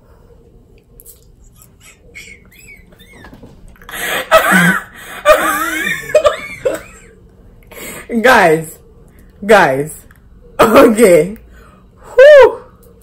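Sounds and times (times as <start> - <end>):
woman laughing loudly: 1.6 - 7.1.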